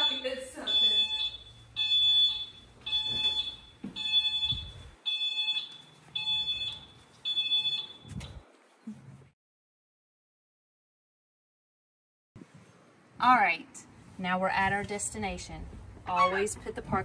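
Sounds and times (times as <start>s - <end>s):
reverse warning beeper: 0.0s - 8.1s.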